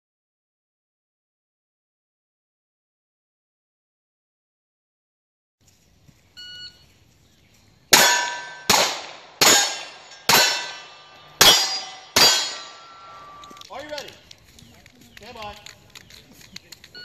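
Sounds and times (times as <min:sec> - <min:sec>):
gunshots: 0:07.9 - 0:13.6
steel plate ringing: 0:08.0 - 0:13.4.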